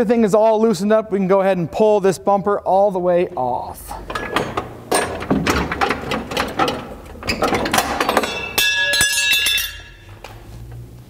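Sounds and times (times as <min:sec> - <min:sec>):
bumper knocks rattles and scraping: 0:04.0 - 0:08.6
ringing metallic clank: 0:07.7 - 0:10.2.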